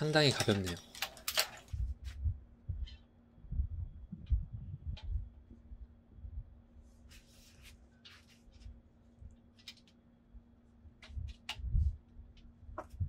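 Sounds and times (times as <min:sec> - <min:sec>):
handling rustles and clicks: 0:00.0 - 0:02.2, 0:08.0 - 0:10.0
faint steady hum: 0:00.0 - 0:13.0.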